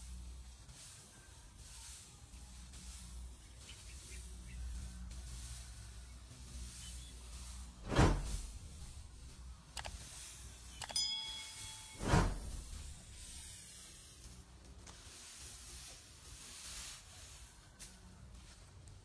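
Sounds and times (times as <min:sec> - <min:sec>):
straw rustling as raked: 0:00.0 - 0:19.0
heavy thump: 0:07.8 - 0:09.1, 0:12.0 - 0:13.2
bell-like ding: 0:10.8 - 0:13.2.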